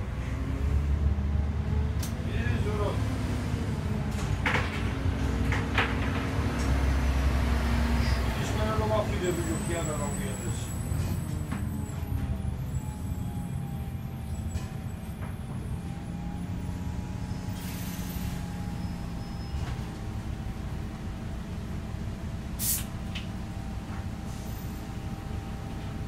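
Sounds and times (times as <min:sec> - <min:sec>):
bus engine running: 0:00.0 - 0:26.0
air brake hiss: 0:17.5 - 0:18.4, 0:22.6 - 0:23.0.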